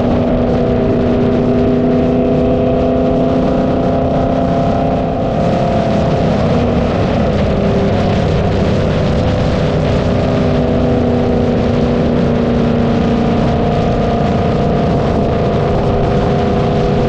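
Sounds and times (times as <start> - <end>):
car exhaust cruising: 0.0 - 17.0
wind noise: 0.0 - 17.0.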